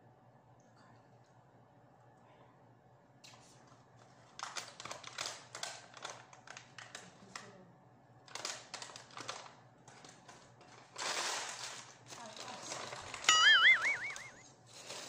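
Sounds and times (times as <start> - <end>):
paper bag crinkling: 4.3 - 7.0, 8.3 - 13.3.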